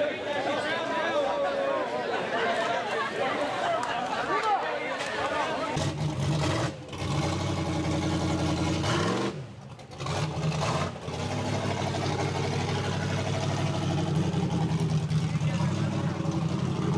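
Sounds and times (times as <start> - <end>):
buggy engine revving hard: 5.7 - 16.9.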